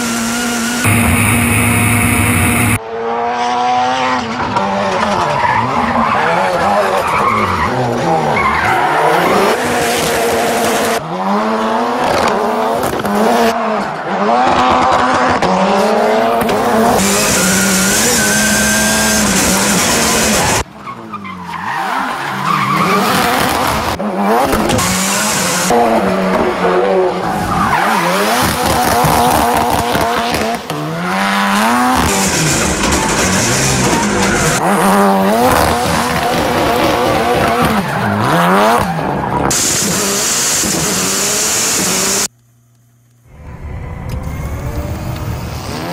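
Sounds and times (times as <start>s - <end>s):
rally car engine revving: 0.0s - 42.3s, 43.4s - 45.9s
tyres squealing and skidding: 4.9s - 10.4s, 16.4s - 29.9s, 30.8s - 42.2s.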